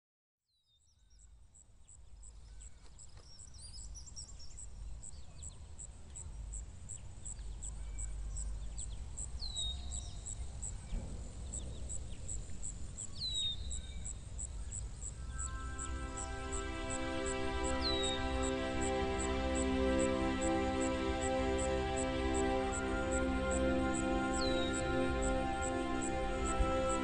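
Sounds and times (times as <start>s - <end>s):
high insect chirp: 4.6s - 27.0s
birds chirping: 4.8s - 27.0s
low rumble: 10.7s - 27.0s.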